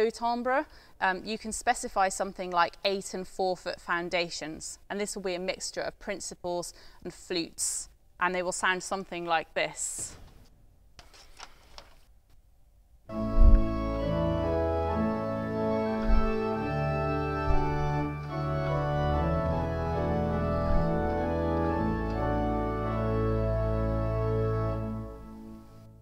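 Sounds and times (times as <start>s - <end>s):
pipe organ sustained chords: 13.1s - 26.0s.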